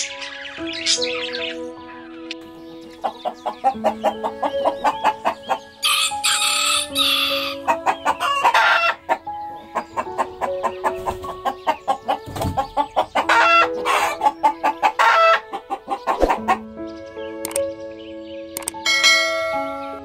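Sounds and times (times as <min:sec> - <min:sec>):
chickens clucking: 0:02.6 - 0:16.7
rooster crowing: 0:05.8 - 0:09.0, 0:13.2 - 0:15.4.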